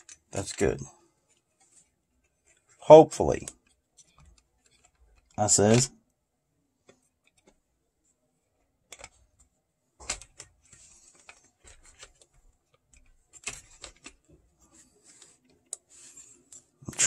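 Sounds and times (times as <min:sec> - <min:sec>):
clicks and taps of handling plastic: 0:06.8 - 0:07.7, 0:08.6 - 0:15.9.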